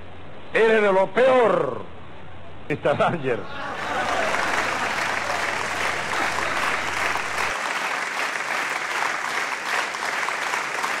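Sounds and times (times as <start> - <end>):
low hum: 3.5 - 7.5
audience applauding: 3.5 - 11.0.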